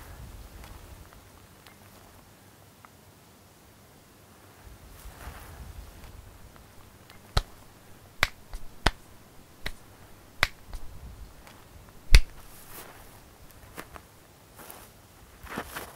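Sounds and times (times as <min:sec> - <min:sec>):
stone knocking against stone: 0:06.6 - 0:12.6.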